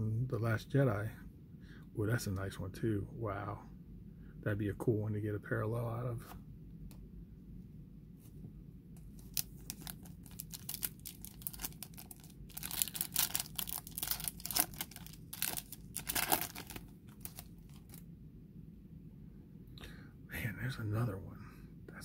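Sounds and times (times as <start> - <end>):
foil wrapper crinkling: 9.2 - 18.0
foil wrapper tearing: 9.2 - 18.0.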